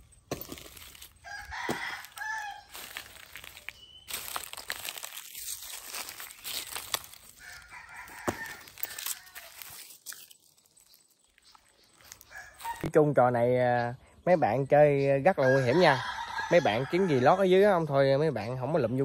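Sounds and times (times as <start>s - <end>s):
footsteps on dry leaves: 0.0s - 12.9s
rooster crowing: 1.2s - 3.4s, 7.3s - 9.8s, 12.3s - 12.9s, 15.4s - 17.5s.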